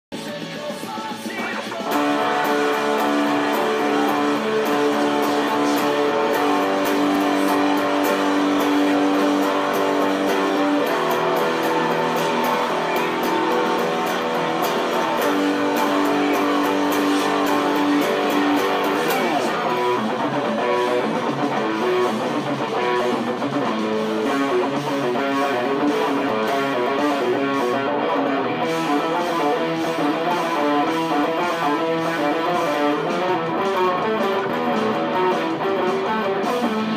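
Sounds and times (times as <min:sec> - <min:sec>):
electric guitar lead solo: 0:01.4 - 0:36.9.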